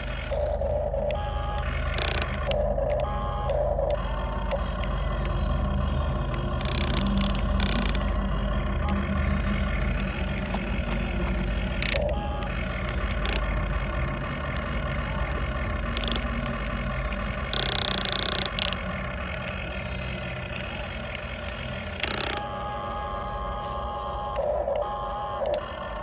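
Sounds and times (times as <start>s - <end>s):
electric motors whirring: 0.0s - 26.0s
short clicks: 15.9s - 19.9s, 20.5s - 22.5s.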